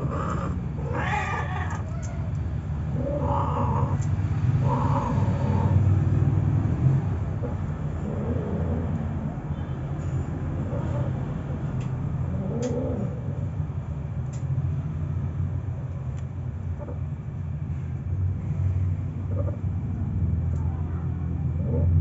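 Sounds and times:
cats crying: 0.0s - 5.9s.

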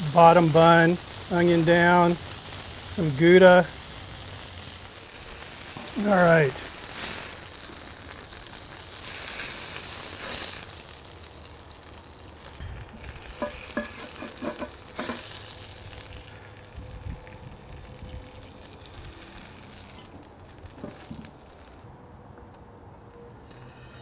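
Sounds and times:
meat sizzling on griddle: 0.0s - 21.8s
metal spatulas scraping and clinking: 13.4s - 15.2s.

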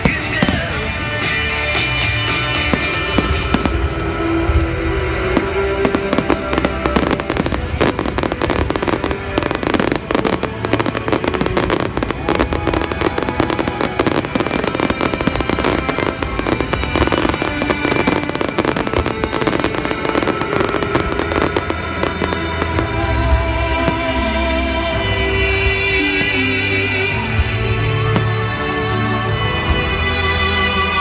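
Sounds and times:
fireworks bangs and crackling: 0.0s - 28.4s
music playing: 0.0s - 31.0s.

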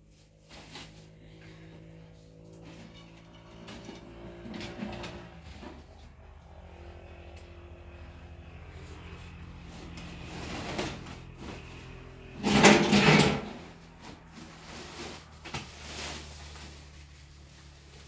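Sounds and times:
low steady hum: 0.0s - 18.0s
scraping rustle on plastic mat: 12.4s - 18.0s.

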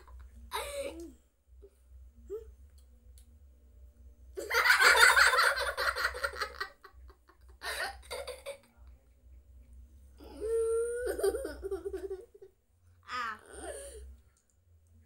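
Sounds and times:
young child laughing: 10.8s - 12.5s.

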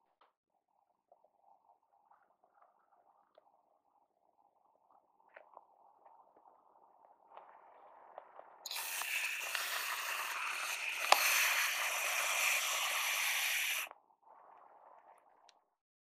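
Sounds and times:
whipped cream can hissing: 8.7s - 13.9s.

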